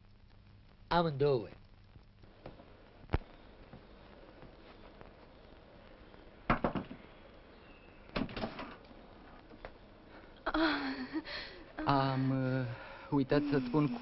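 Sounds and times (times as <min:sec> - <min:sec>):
person speaking: 0:11.8 - 0:14.0.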